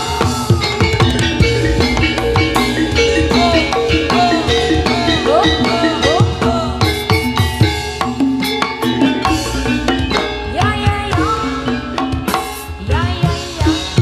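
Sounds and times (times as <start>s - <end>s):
drum strokes: 0.0s - 14.0s
mallet percussion: 0.0s - 14.0s.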